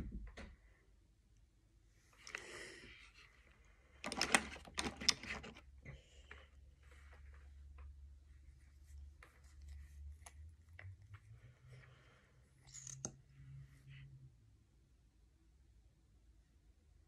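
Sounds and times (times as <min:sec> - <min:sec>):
faint low hum: 0:00.0 - 0:17.0
rustling and clicking: 0:04.0 - 0:06.4.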